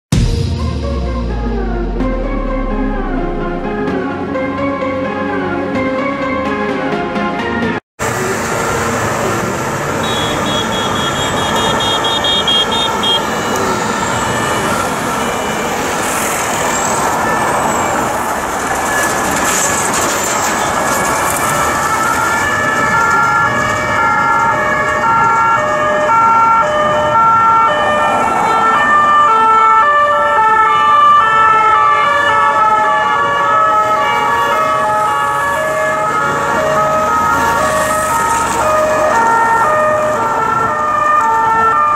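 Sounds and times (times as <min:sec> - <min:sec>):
city traffic: 0:00.1 - 0:41.9
two-tone police sirens: 0:08.0 - 0:41.9.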